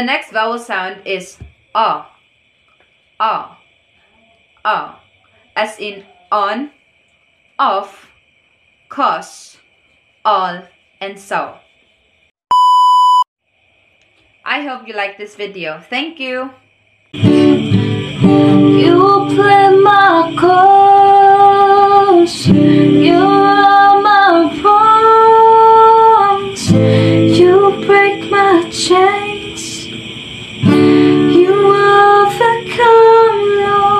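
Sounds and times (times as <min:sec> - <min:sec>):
strummed acoustic guitar: 0:17.2 - 0:33.9
woman singing long held notes: 0:17.2 - 0:33.9.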